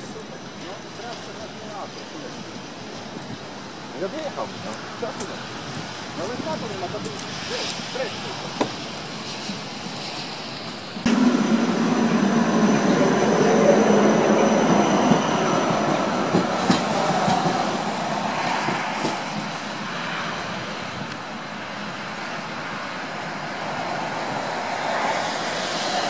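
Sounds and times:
tram rumbling with high whine: 0:08.6 - 0:26.0.

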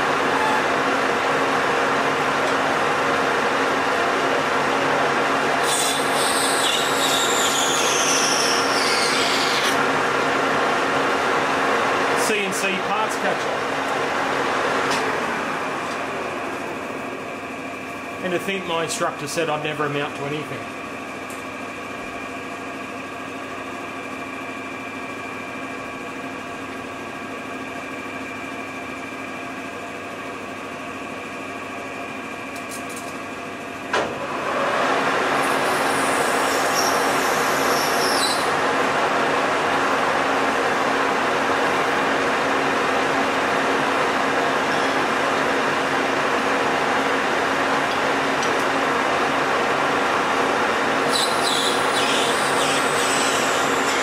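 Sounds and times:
high whistle from cutting tool: 0:05.6 - 0:09.7, 0:35.4 - 0:38.5, 0:51.1 - 0:54.0
lathe gear hum: 0:29.9 - 0:54.0.

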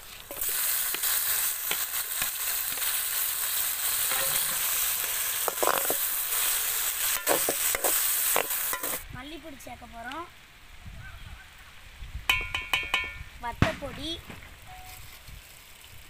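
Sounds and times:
food sizzling in hot oil: 0:00.0 - 0:09.6
metal spoon knocking a pot: 0:12.3 - 0:13.2.

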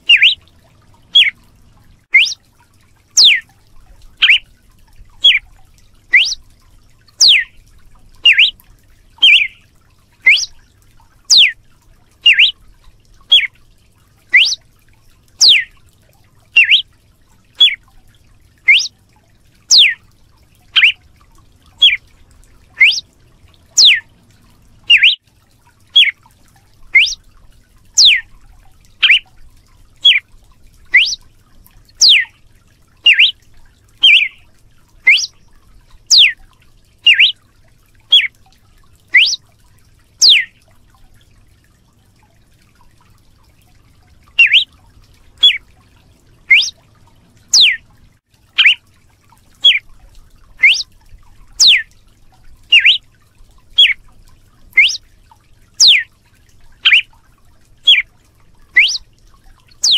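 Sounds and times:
bird whistling sharp falling notes: 0:00.0 - 0:00.4, 0:02.2 - 0:02.4, 0:04.2 - 0:04.4, 0:06.2 - 0:06.4, 0:07.2 - 0:07.5, 0:08.3 - 0:08.5, 0:09.2 - 0:09.6, 0:10.3 - 0:10.5, 0:11.3 - 0:11.6, 0:12.3 - 0:12.5, 0:14.4 - 0:14.6, 0:16.6 - 0:16.8, 0:18.7 - 0:18.9, 0:19.7 - 0:20.0, 0:20.8 - 0:21.0, 0:21.8 - 0:22.0, 0:22.8 - 0:23.0, 0:23.8 - 0:24.0, 0:24.9 - 0:25.2, 0:27.0 - 0:27.2, 0:28.0 - 0:28.2, 0:31.0 - 0:31.2, 0:33.1 - 0:33.4, 0:34.0 - 0:34.4, 0:35.1 - 0:35.3, 0:36.1 - 0:36.4, 0:37.1 - 0:37.4, 0:39.2 - 0:39.4, 0:44.4 - 0:44.6, 0:46.5 - 0:46.7, 0:47.6 - 0:47.8, 0:50.6 - 0:50.8, 0:52.7 - 0:53.0, 0:54.8 - 0:55.0, 0:55.8 - 0:56.0, 0:58.8 - 0:59.0.

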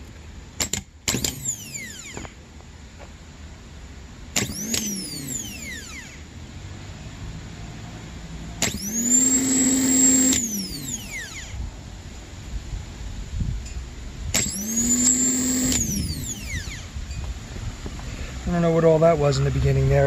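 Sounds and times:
starter motor whining: 0:00.6 - 0:02.4, 0:04.3 - 0:06.3, 0:08.6 - 0:11.6, 0:14.3 - 0:17.0.

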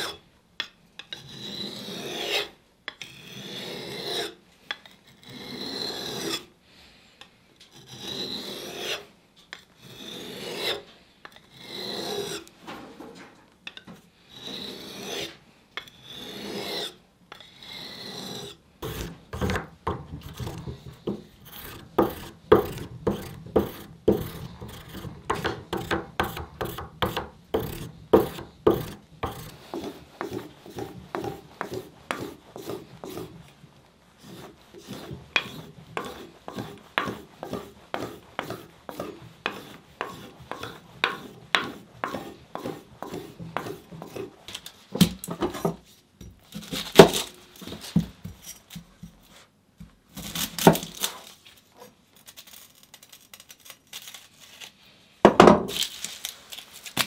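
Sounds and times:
blade scraping strokes: 0:07.7 - 0:09.1, 0:14.3 - 0:15.4, 0:27.6 - 0:33.6, 0:34.2 - 0:44.7.

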